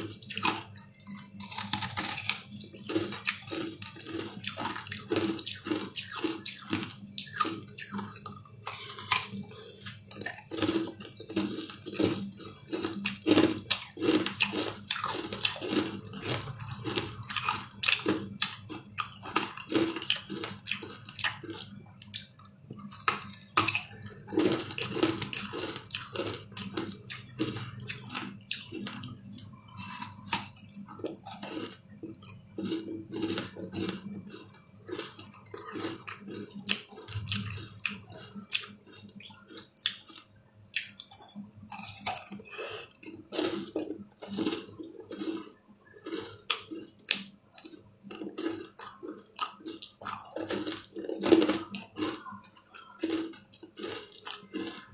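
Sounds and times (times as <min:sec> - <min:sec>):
chewing: 0:00.0 - 0:54.9
ice treat crackling when bitten: 0:00.3 - 0:12.1, 0:40.8 - 0:54.9.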